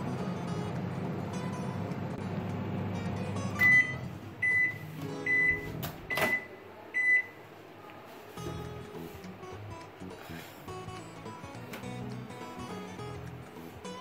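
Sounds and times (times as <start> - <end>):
microwave oven hum: 0.0 - 7.5.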